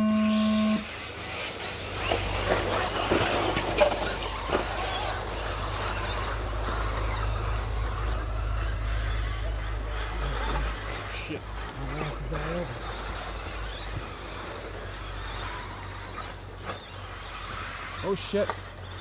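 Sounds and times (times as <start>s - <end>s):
electronic start tone: 0.0s - 0.9s
remote control trucks racing: 0.0s - 19.0s.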